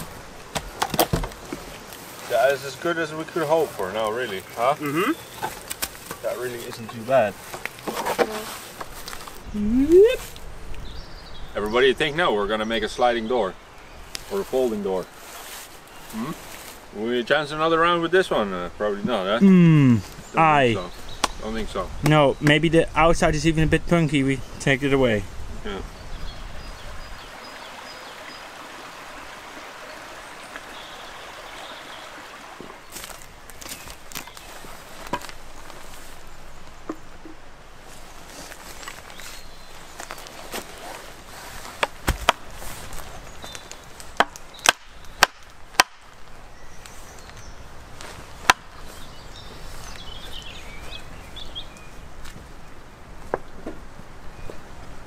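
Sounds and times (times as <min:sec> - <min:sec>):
running water: 0:23.0 - 0:41.3
axe chopping into log: 0:41.8 - 0:42.4, 0:44.2 - 0:46.0.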